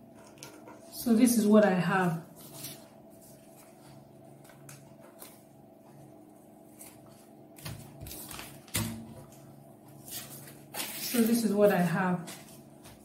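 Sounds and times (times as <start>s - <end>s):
paper rustling: 2.2s - 5.5s, 6.6s - 8.8s, 9.9s - 13.0s.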